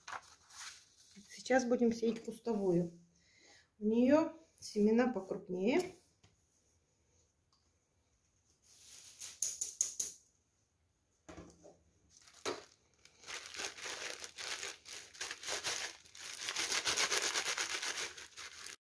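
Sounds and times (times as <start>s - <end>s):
dried seed heads rustling: 12.1s - 18.8s
plastic zip bag crinkling: 12.1s - 18.8s.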